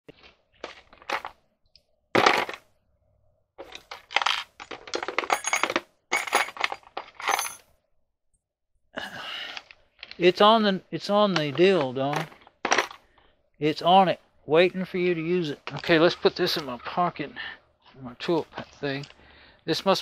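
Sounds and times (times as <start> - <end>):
small metal tools clinking: 3.6 - 7.7.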